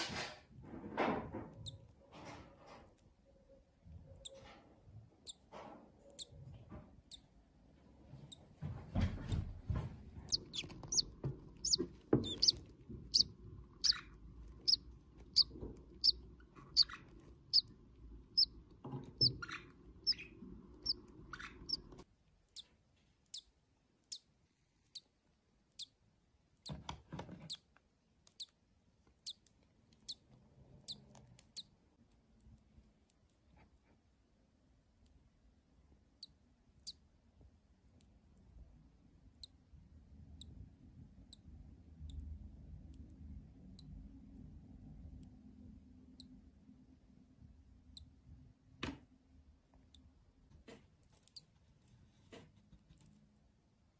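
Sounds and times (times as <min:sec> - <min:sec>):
bird chick peeping: 0:01.4 - 0:02.0, 0:02.9 - 0:04.5, 0:05.2 - 0:07.4, 0:10.1 - 0:26.0, 0:26.6 - 0:32.2, 0:39.3 - 0:44.0, 0:46.1 - 0:46.4, 0:51.1 - 0:51.5.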